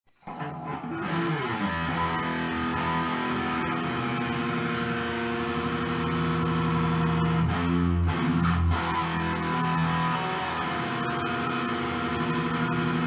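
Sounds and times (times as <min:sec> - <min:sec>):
electric guitar chords: 0:00.2 - 0:13.0
low bass: 0:00.6 - 0:13.0.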